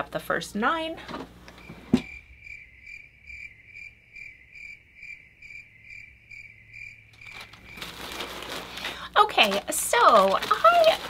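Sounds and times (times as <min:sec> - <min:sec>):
cricket chirping: 0:01.6 - 0:08.2.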